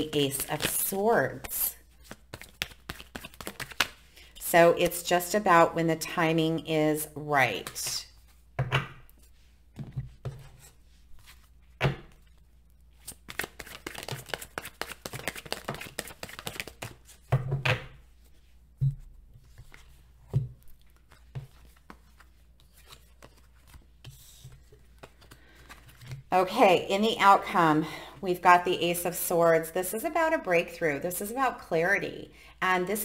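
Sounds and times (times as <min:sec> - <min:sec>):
cards shuffling: 0:00.0 - 0:04.1, 0:13.0 - 0:17.3, 0:20.6 - 0:26.3.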